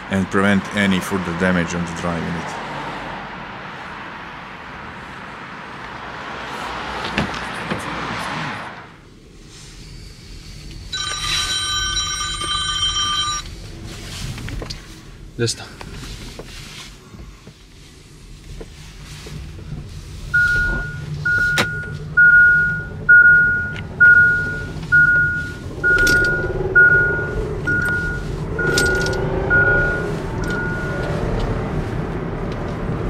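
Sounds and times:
road and drivetrain noise: 0:00.0 - 0:33.0
single-tone warning chime beeps: 0:10.9 - 0:13.4, 0:20.4 - 0:31.0.

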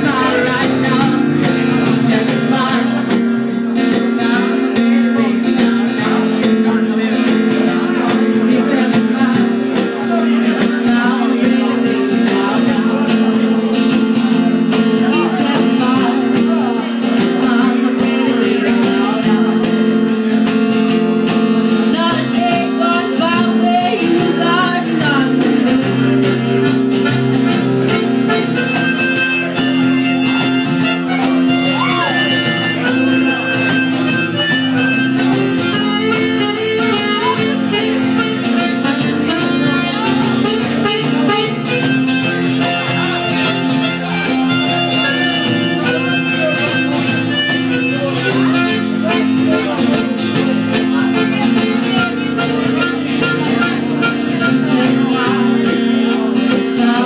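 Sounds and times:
electric guitar: 0:00.0 - 0:57.0
strummed acoustic guitar: 0:00.0 - 0:57.0
squeezebox held reedy notes: 0:13.3 - 0:57.0.

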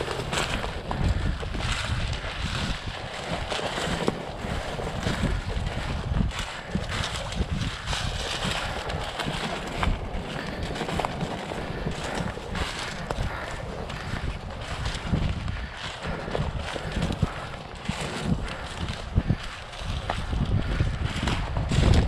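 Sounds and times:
dry plants rustling: 0:00.0 - 0:22.0
wind rumbling on microphone: 0:00.0 - 0:22.0.

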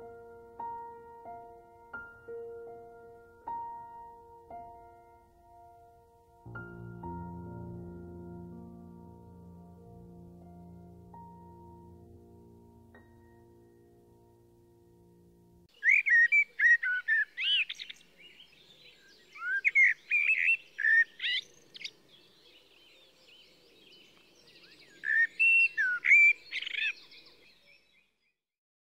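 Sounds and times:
songbird singing: 0:15.7 - 0:28.2.

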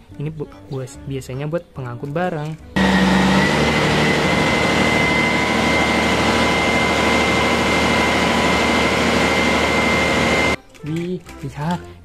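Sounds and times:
forklift diesel engine running: 0:02.8 - 0:10.6
high whine: 0:02.8 - 0:10.6.

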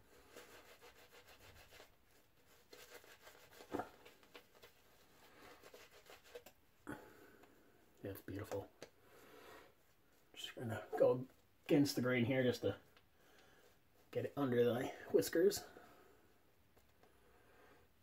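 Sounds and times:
shaving brush rubbing on face: 0:00.0 - 0:06.6.

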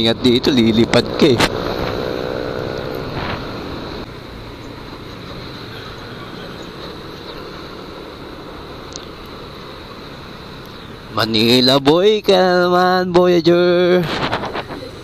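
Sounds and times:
scooter engine drone: 0:00.0 - 0:11.2
wind and road noise: 0:00.0 - 0:15.0.

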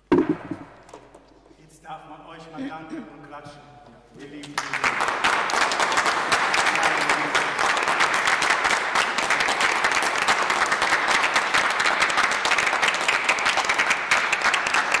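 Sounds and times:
people clapping: 0:04.2 - 0:15.0.

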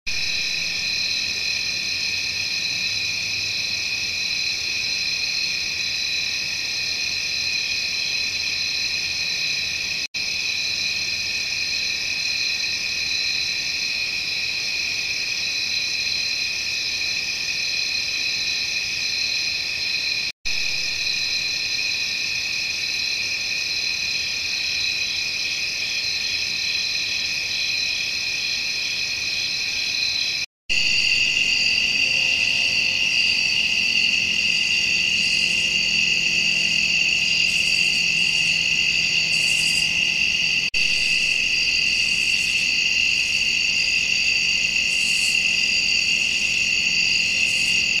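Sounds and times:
chorus of night insects: 0:00.1 - 0:48.0.

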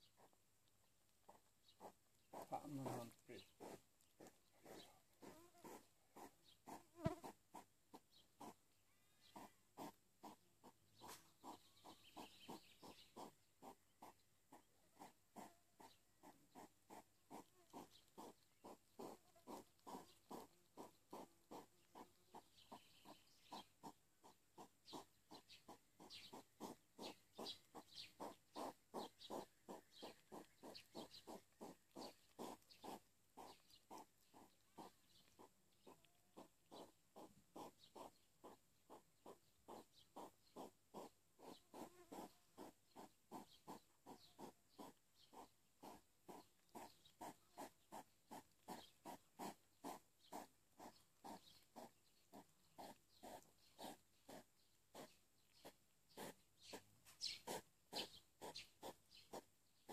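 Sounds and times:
hedgehogs chewing wetly: 0:00.0 - 0:59.9.

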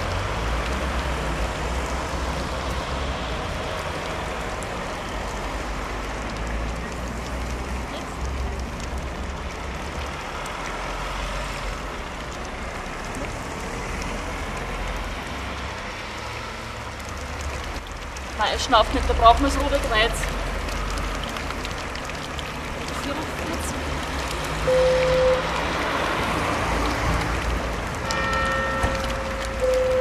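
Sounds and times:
street ambience hiss: 0:00.0 - 0:30.0.

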